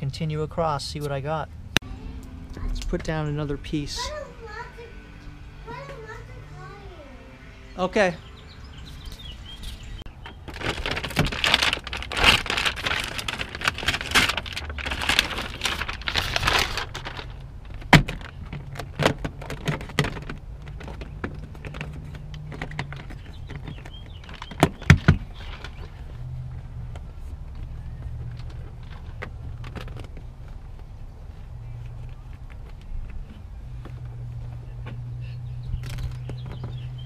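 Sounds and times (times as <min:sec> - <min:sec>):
foil mat crinkling and rustling: 0:10.1 - 0:34.8.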